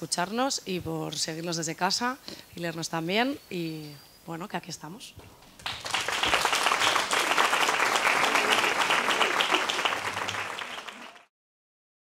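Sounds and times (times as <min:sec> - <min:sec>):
audience applauding: 0:05.6 - 0:11.3.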